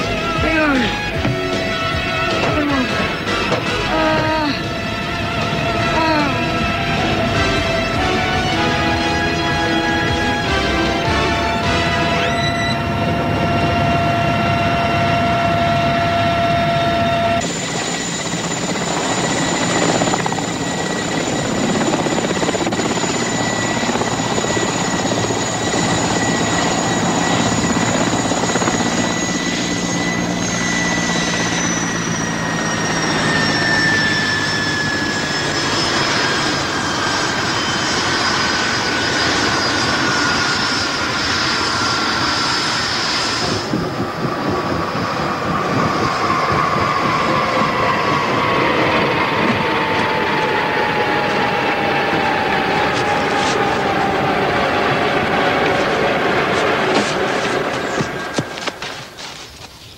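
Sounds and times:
music: 0.0s - 13.0s
turbine whine: 0.0s - 59.7s
helicopter rotor noise: 0.0s - 59.9s.

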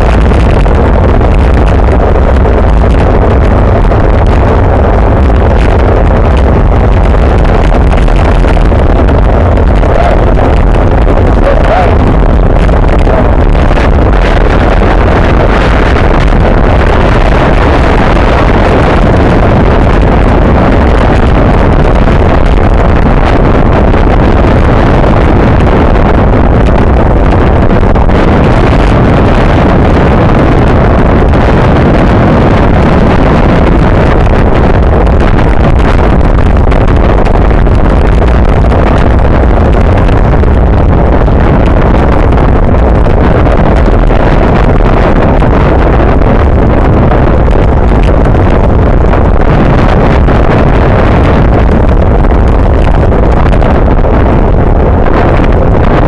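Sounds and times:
wind rumble on microphone: 0.0s - 56.0s.

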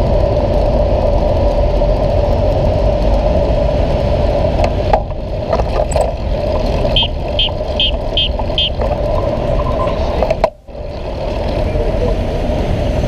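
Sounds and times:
bicycle road noise: 0.0s - 13.0s
city traffic rumble: 0.0s - 13.0s
high electronic beeps: 6.9s - 10.2s.

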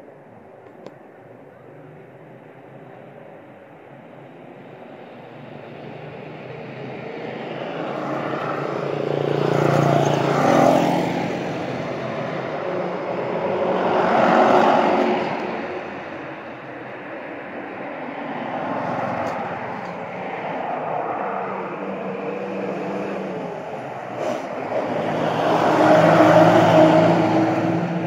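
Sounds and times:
vehicle engines passing by: 0.0s - 28.0s.

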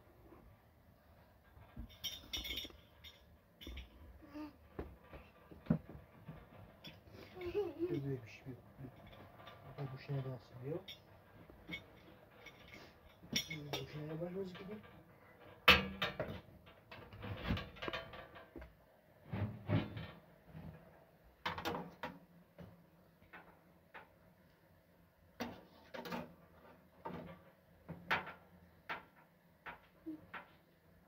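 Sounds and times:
metallic clanks from wood stove: 10.8s - 18.6s.

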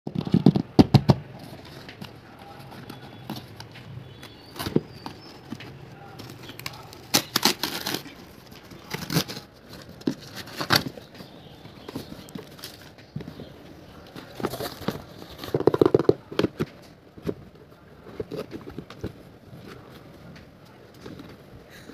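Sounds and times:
packaging rustling: 0.1s - 17.4s
cardboard and paper ripping: 6.2s - 11.1s.

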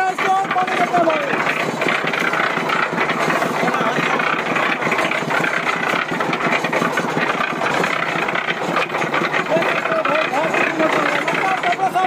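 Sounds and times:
concrete mixer rattling: 0.0s - 12.0s.

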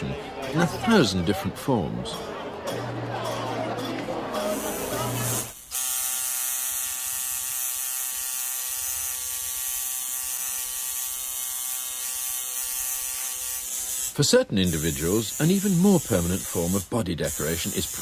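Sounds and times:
tattoo machine buzzing: 4.4s - 18.0s.

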